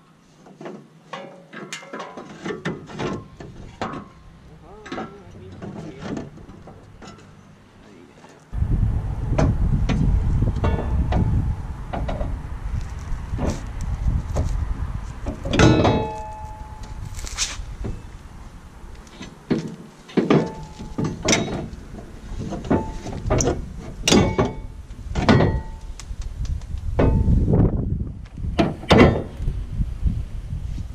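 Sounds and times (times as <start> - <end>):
metal hitch knocking against frame: 10.6 - 12.4, 15.2 - 17.0, 19.2 - 25.8, 27.0 - 27.4, 28.6 - 29.4.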